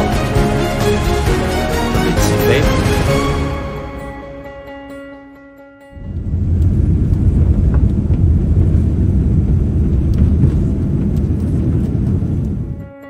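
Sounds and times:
airliner engine rumble on takeoff: 6.0 - 12.8.

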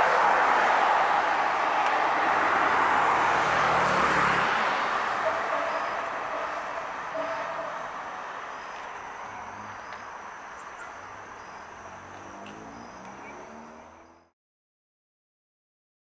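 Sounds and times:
fire truck siren: 0.0 - 11.0
traffic noise: 0.0 - 14.4.

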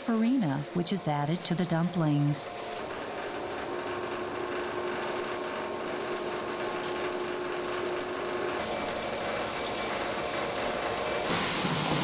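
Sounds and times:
food-processing machine humming: 0.0 - 12.0.

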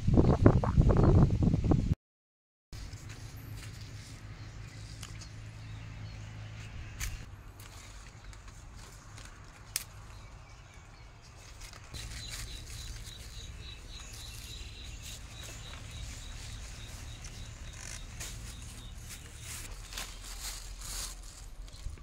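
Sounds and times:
leaves and twigs rustling: 2.8 - 22.0
faint high chirping: 12.0 - 20.6.

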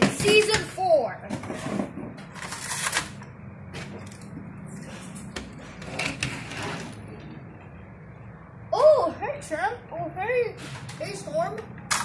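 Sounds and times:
toy cars clicking and knocking: 0.0 - 0.8, 11.6 - 12.0.

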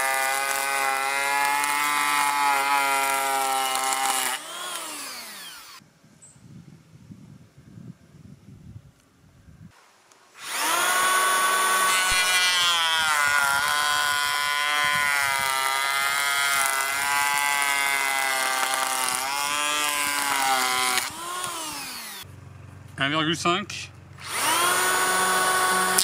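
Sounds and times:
electric planer motor whine: 0.0 - 5.8, 10.4 - 22.2, 24.2 - 26.0.

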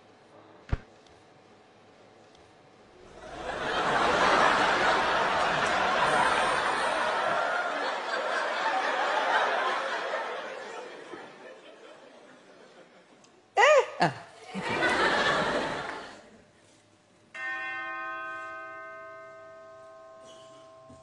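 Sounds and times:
studio audience laughing: 3.2 - 13.2, 14.4 - 16.3.

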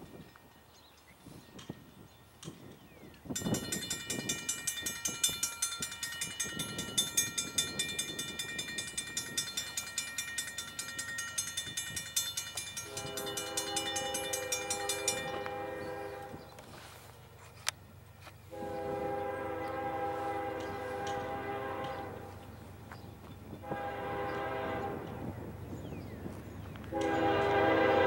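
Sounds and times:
crossing bells ringing: 1.6 - 17.0, 18.5 - 22.6
locomotive horn chord: 12.8 - 16.6, 18.5 - 22.5, 23.6 - 25.2, 26.9 - 28.0.

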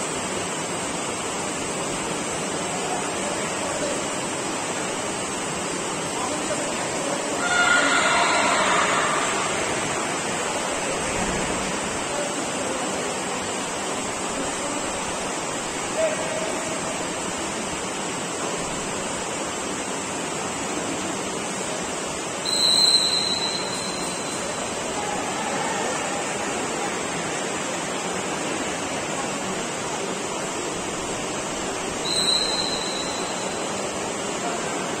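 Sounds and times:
steady hiss: 0.0 - 35.0
referee whistle blasts: 22.4 - 24.5, 32.0 - 33.8.

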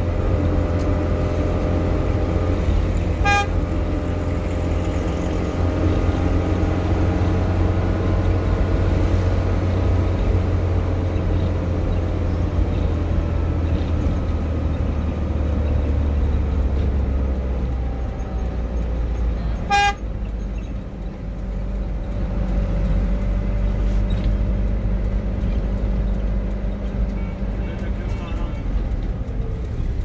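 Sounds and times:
heavy vehicle engine running: 0.0 - 30.0
horn honk: 3.0 - 4.0, 19.6 - 20.0.

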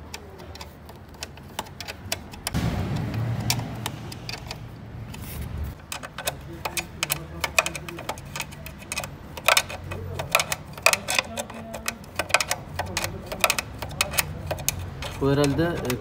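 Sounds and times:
loud low noise: 2.6 - 5.8.

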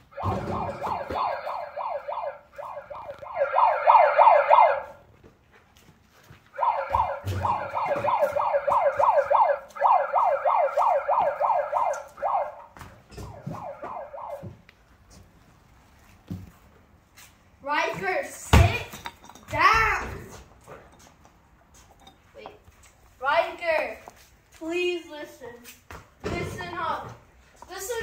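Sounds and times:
megaphone siren yelp: 0.0 - 5.0, 6.6 - 14.6.

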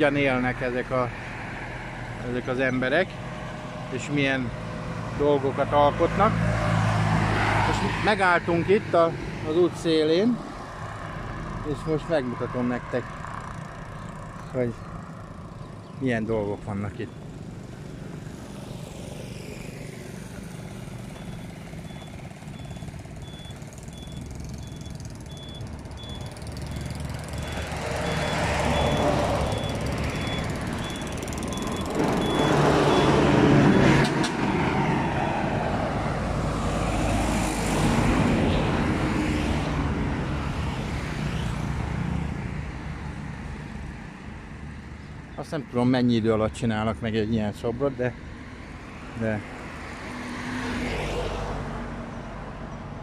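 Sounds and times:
road traffic passing: 0.0 - 53.0
short high beeps: 21.2 - 33.9.

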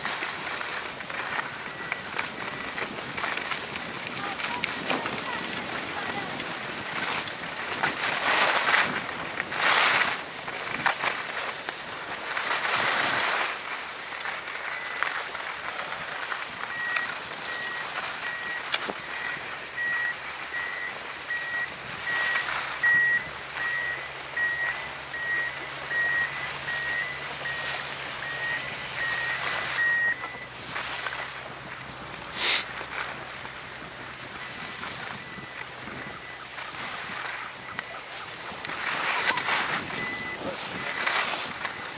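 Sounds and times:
skis scraping over snow: 0.0 - 41.9
high electronic beep: 14.7 - 15.0, 16.7 - 30.5, 39.0 - 41.1.

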